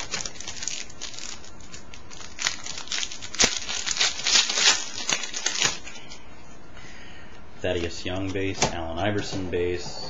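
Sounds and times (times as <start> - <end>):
wrapper snapping: 0.0 - 5.9
foil wrapper crinkling: 0.0 - 6.1.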